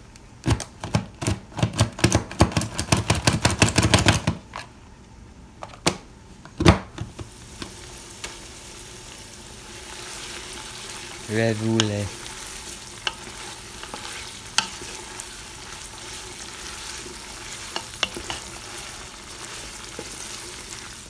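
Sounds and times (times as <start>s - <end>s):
meat sizzling in a pot: 7.0s - 21.0s.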